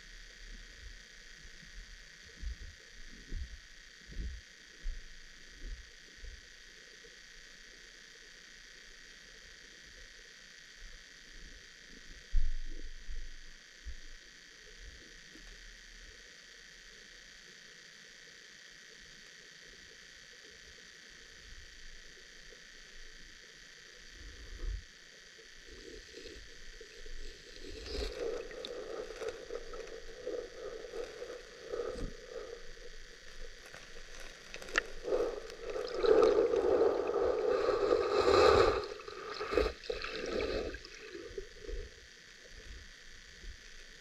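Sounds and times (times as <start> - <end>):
underwater gurgling and sloshing: 22.1 - 44.0.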